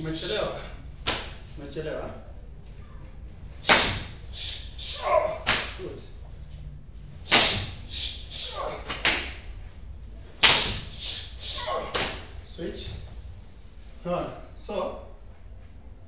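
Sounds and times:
slaps of karate blocks and punches: 0:01.0 - 0:01.4, 0:03.6 - 0:05.9, 0:07.2 - 0:09.5, 0:10.4 - 0:12.4.

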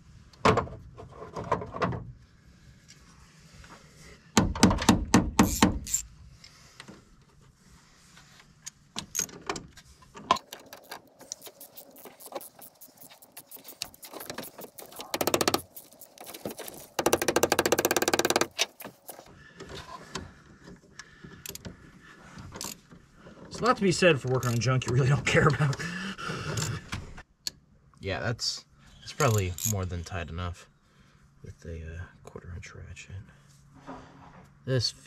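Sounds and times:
ratchet clicking: 0:05.4 - 0:06.1, 0:10.4 - 0:19.2.

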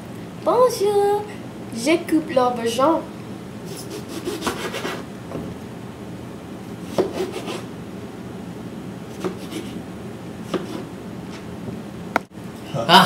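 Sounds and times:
knife slicing on plastic cutting board: 0:03.8 - 0:05.0, 0:06.9 - 0:07.7, 0:09.2 - 0:09.8, 0:10.5 - 0:10.9.

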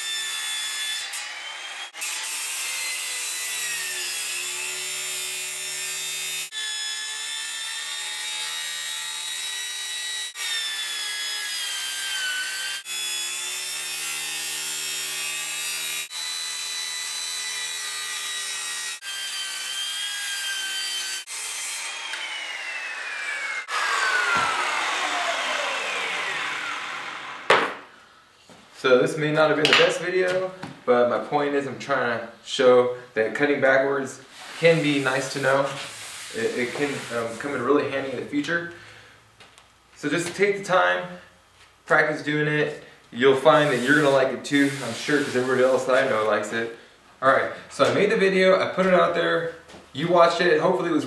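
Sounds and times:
circular saw cutting: 0:00.0 - 0:27.5, 0:34.6 - 0:38.1, 0:43.4 - 0:46.4
saw motor winding down: 0:21.8 - 0:27.5
saw thump on table: 0:24.3 - 0:24.6, 0:27.5 - 0:27.8.

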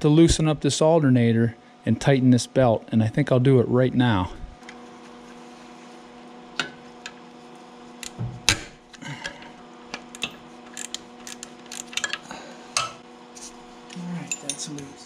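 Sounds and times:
steady hum: 0:00.0 - 0:15.0
ratchet and wrench clicking: 0:10.1 - 0:12.2.

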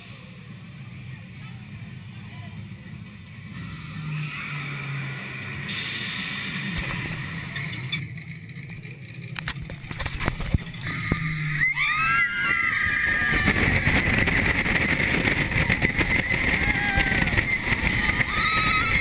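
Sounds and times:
roller coaster train: 0:00.0 - 0:19.0
wind noise on microphone: 0:12.5 - 0:19.0.

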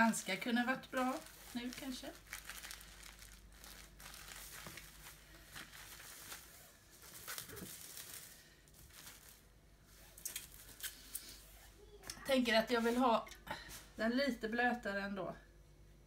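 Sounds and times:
plastic film crackling: 0:00.0 - 0:11.2
plastic cling film crinkling: 0:00.0 - 0:11.5.

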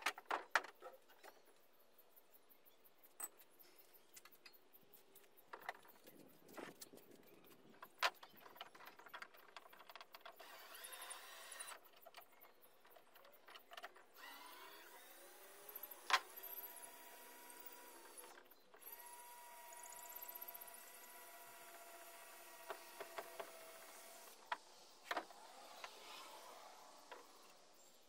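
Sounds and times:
cordless drill running: 0:10.4 - 0:11.8, 0:14.2 - 0:24.4.

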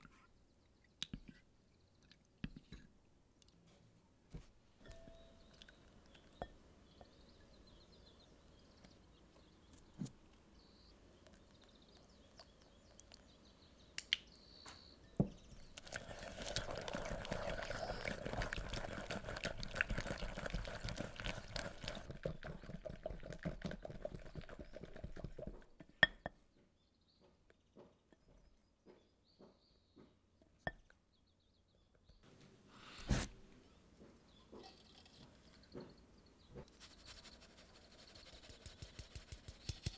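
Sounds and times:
egg being poured into bowl: 0:15.7 - 0:25.6
whisk beating in glass bowl: 0:15.9 - 0:25.6, 0:36.9 - 0:39.9.

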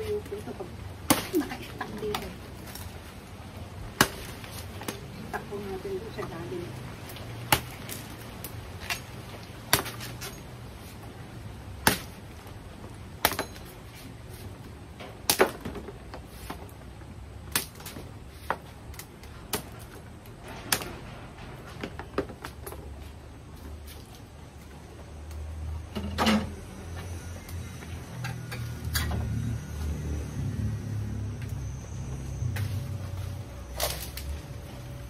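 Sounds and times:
knife chopping palm stalk: 0:09.7 - 0:10.3.

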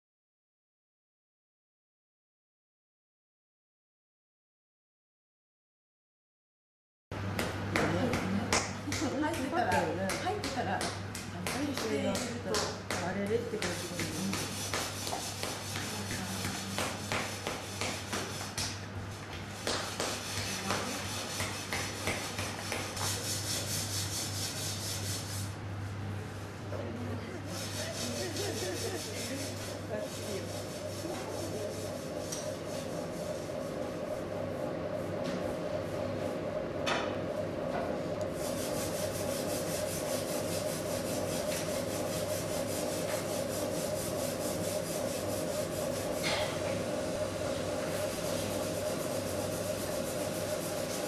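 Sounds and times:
steady low hum: 0:07.2 - 0:51.0
wooden tool scraping clay bowl: 0:13.6 - 0:18.5, 0:19.9 - 0:25.3, 0:27.6 - 0:33.5.

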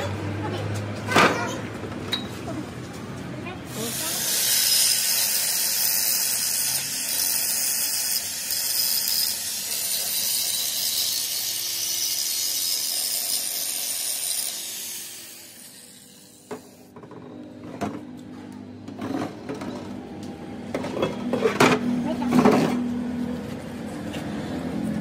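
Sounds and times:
angle grinder sanding metal: 0:03.7 - 0:16.9.

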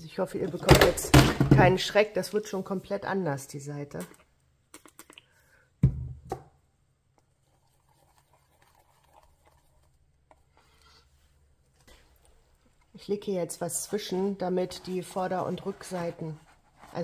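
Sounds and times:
paintbrush scrubbing paint: 0:07.4 - 0:11.3, 0:13.5 - 0:17.0.

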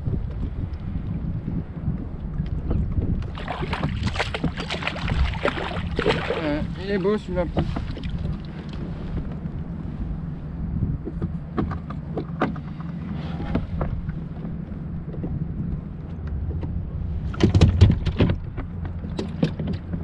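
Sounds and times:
wind rumble on microphone: 0:00.0 - 0:20.0
water splashing and knocking: 0:02.7 - 0:06.8, 0:07.4 - 0:08.9.

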